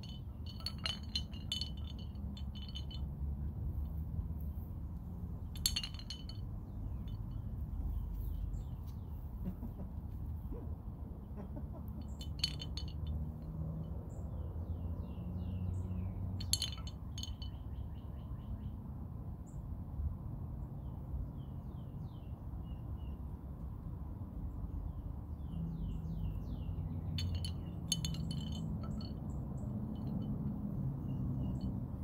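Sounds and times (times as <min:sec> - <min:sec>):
wind chime clinking: 0:00.0 - 0:03.2, 0:05.6 - 0:07.5, 0:12.1 - 0:13.3, 0:16.4 - 0:17.7, 0:27.1 - 0:32.0
bird chirping: 0:14.1 - 0:18.8.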